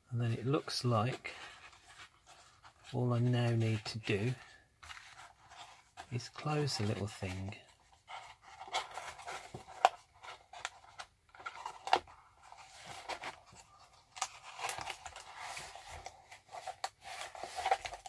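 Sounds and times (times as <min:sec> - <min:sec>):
cardboard flaps rustling and scraping: 0:00.4 - 0:18.0.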